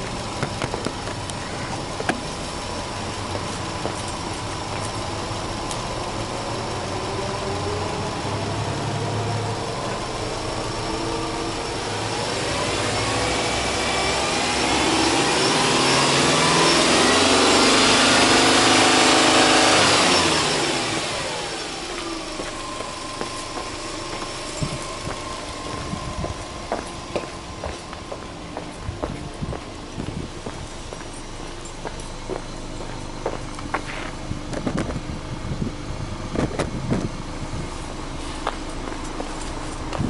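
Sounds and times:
car engine idling and revving: 0.0 - 40.0.

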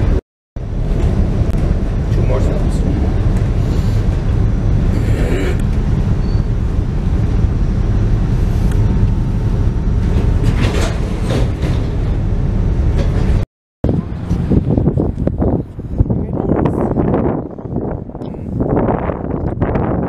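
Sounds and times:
train car rumble: 0.0 - 20.0.

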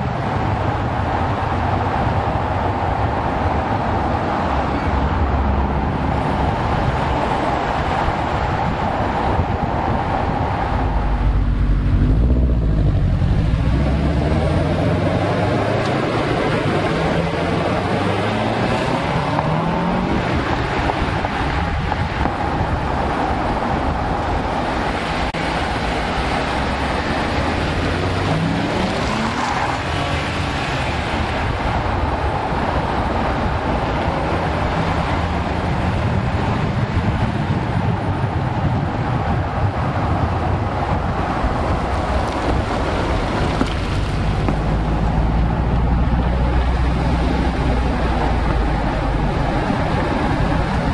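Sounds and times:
wind noise: 0.0 - 50.9
car engine accelerating through gears: 10.0 - 21.6, 25.4 - 31.5
tyre noise: 40.1 - 50.9.

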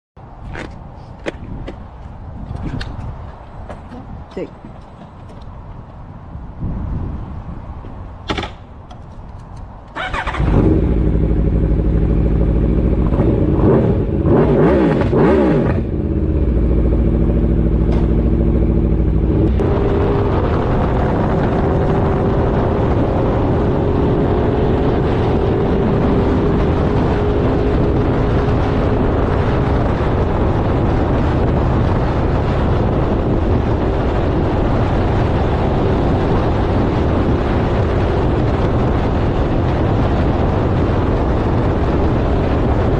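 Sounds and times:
wind noise: 0.2 - 42.9
motorcycle engine running: 10.0 - 42.9.

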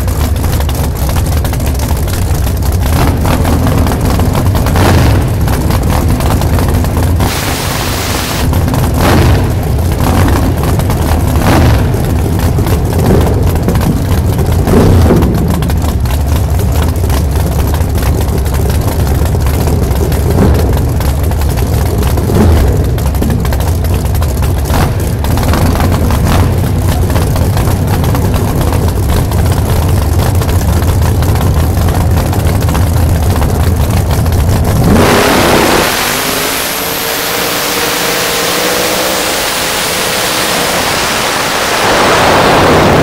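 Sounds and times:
race car engine idling: 0.0 - 43.0
loud hiss: 7.3 - 8.4.

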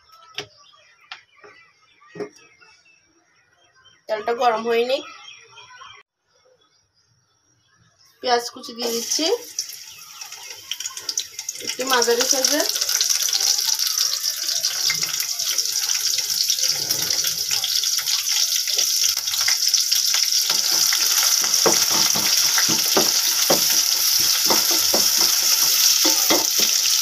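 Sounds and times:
onions sizzling in hot oil: 8.8 - 27.0.

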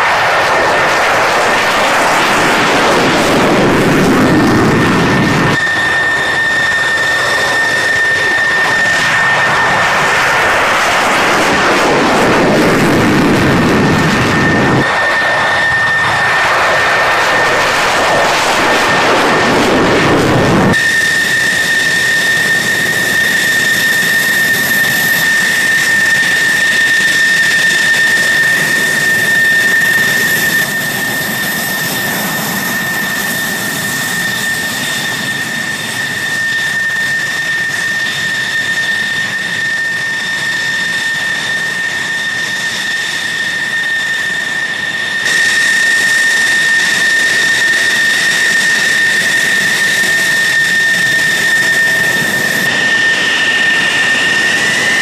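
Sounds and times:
jet engine whine: 0.0 - 55.0.

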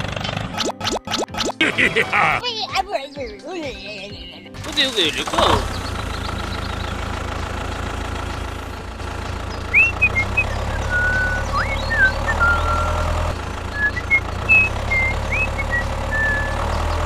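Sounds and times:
tractor engine rumble: 0.0 - 0.5, 4.5 - 17.0
high chirps and whistles: 9.7 - 17.0.

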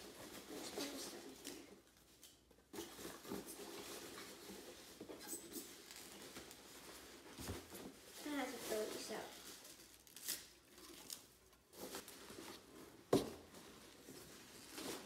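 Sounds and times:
hands rummaging in packing material: 2.6 - 10.2.

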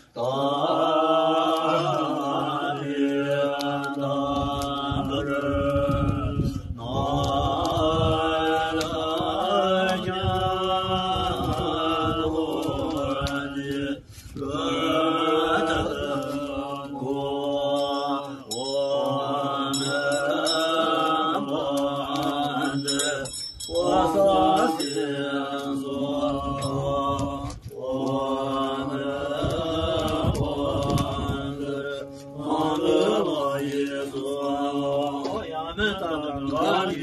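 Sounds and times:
monks chanting: 0.0 - 37.0
faint high ringing tones: 17.7 - 21.0, 22.6 - 25.4.

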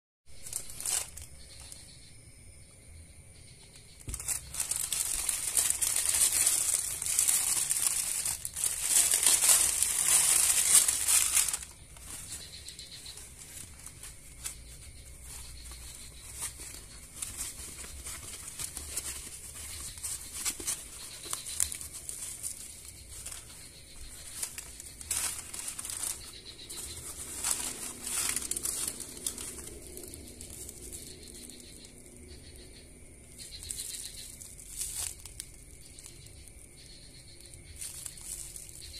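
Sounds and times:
plastic wrap rustling: 0.3 - 1.8, 4.0 - 38.9
plastic mailer crinkling and tearing: 0.4 - 1.7, 4.0 - 32.3.

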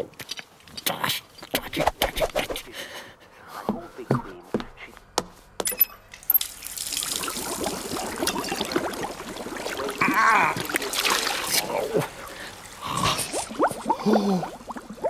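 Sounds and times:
tap water running into sink: 6.3 - 11.6
mumbled voice: 9.9 - 14.6.

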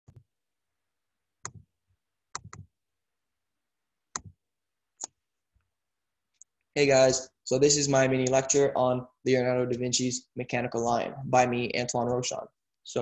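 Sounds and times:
computer mouse clicks: 2.3 - 2.7.

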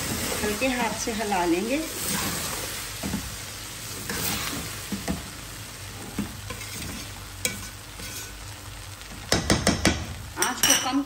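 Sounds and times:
rice sizzling in oil: 0.0 - 11.0
metal spatula scraping pot: 4.0 - 5.2, 6.2 - 8.4.

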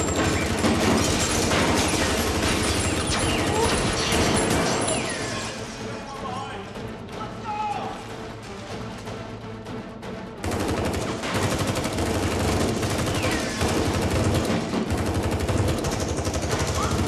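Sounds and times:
rapid automatic gunfire: 0.0 - 5.1, 10.4 - 17.0.

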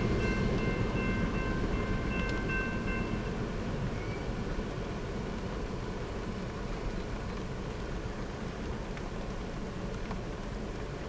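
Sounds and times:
railroad crossing bell ringing: 0.0 - 4.2
freight train rumbling: 0.0 - 11.0.

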